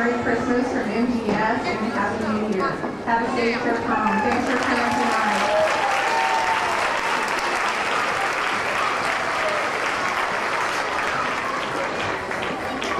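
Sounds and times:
voices among clapping: 4.1 - 12.9
audience applauding: 4.2 - 12.9.

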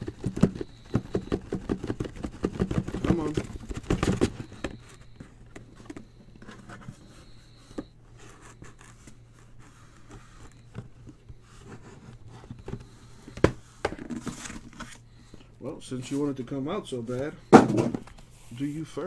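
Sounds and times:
steady low hum: 0.0 - 19.0
card boxes scraping on a table: 11.4 - 15.0.

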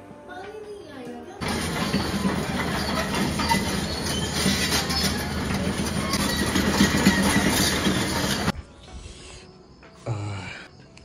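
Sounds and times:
heavy mechanical rumble with clattering: 1.4 - 8.6.

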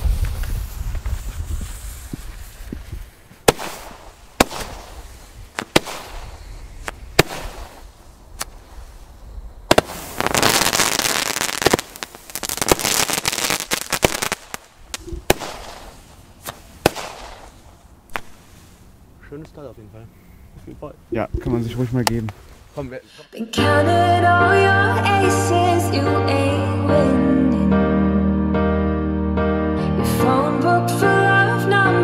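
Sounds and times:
dense firework crackling with pops: 0.0 - 18.6
firework shots: 3.4 - 8.8, 9.6 - 18.5.

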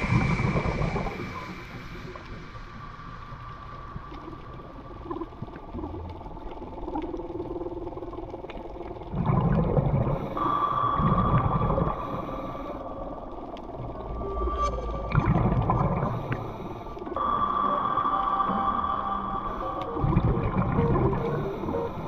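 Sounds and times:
high-pitched whine: 0.0 - 3.4, 13.8 - 22.0
low underwater rumble: 0.0 - 17.8, 18.5 - 22.0.

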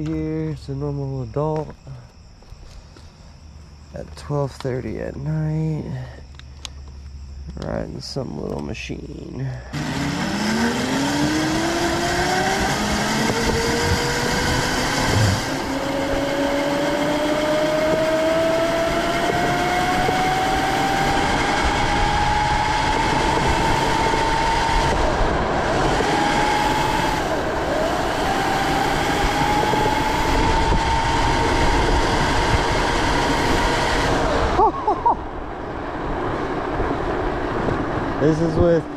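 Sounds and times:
wind and road noise: 0.0 - 38.9
electric motor whine: 9.7 - 34.6.

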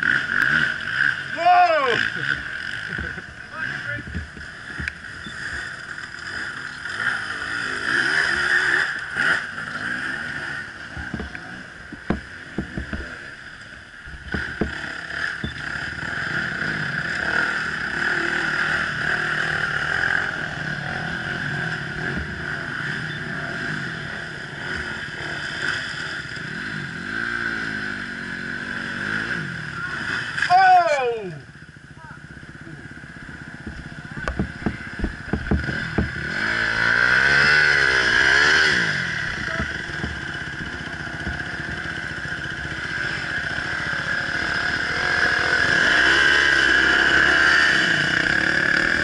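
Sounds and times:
dirt bike engines revving: 0.0 - 49.0
sharp knocks: 11.9 - 13.1, 14.2 - 14.8, 33.6 - 36.3, 39.4 - 41.8.

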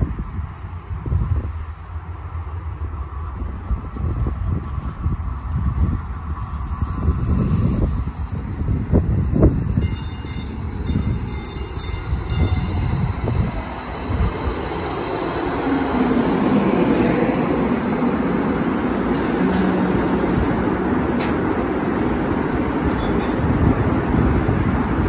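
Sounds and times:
train wheels rumbling on rails: 0.0 - 25.0
train brakes whining: 9.1 - 20.6.

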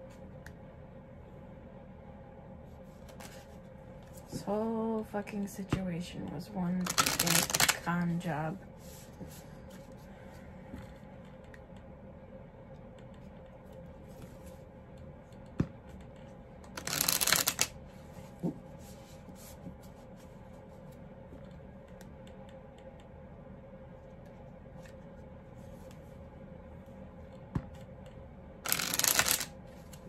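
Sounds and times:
cards being shuffled: 3.0 - 4.4, 6.8 - 8.0, 16.7 - 17.8, 28.6 - 30.0
rush of cards: 6.8 - 7.9, 16.8 - 17.7, 28.7 - 29.5.

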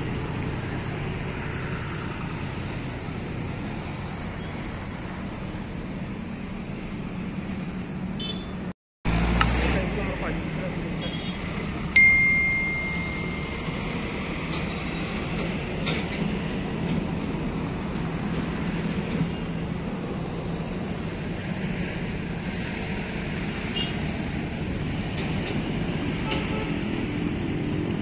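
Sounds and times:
tractor diesel engines droning: 0.0 - 8.4, 9.1 - 28.0
high bell-like ding: 12.0 - 13.9.

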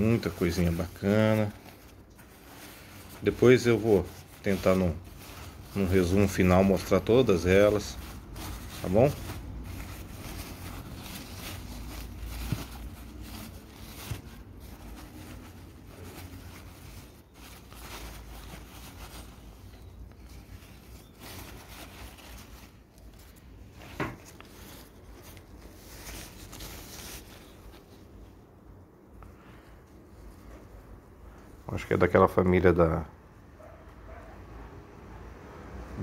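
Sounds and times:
paper packing rustling: 0.0 - 28.3.

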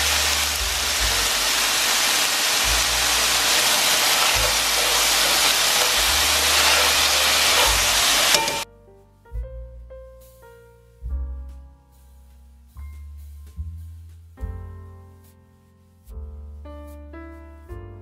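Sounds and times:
vegetables sizzling in a skillet: 0.0 - 8.6
background music with bass line: 0.0 - 18.0.

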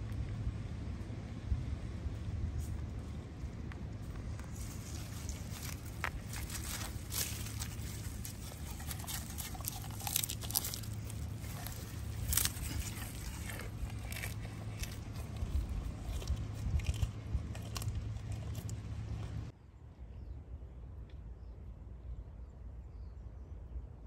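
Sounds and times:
low steady hum: 0.0 - 24.0
deer chewing leaves: 2.0 - 19.5.

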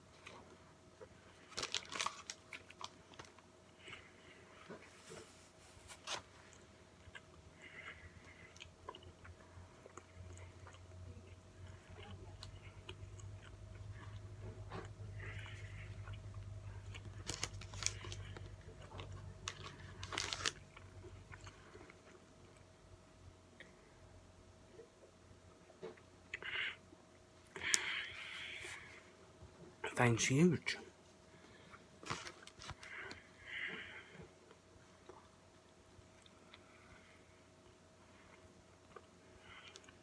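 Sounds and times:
person chewing food: 0.0 - 22.8, 31.4 - 40.0.

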